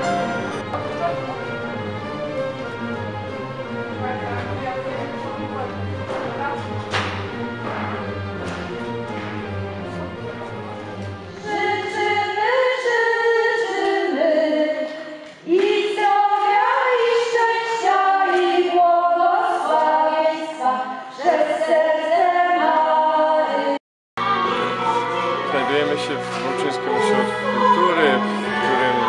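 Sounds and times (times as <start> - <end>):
women singing together: 11.4 - 29.0.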